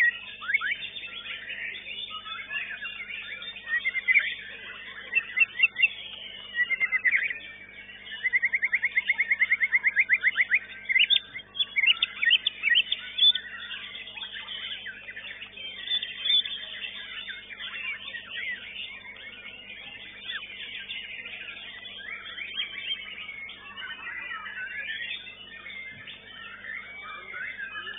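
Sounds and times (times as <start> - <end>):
bird singing chirps and whistles: 0.0 - 27.9.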